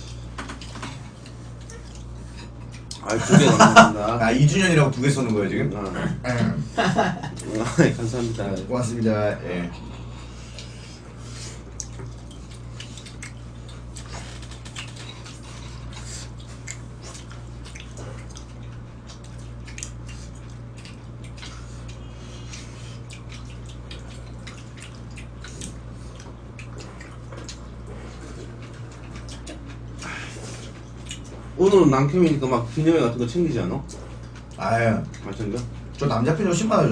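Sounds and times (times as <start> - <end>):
steady low hum: 0.0 - 36.9.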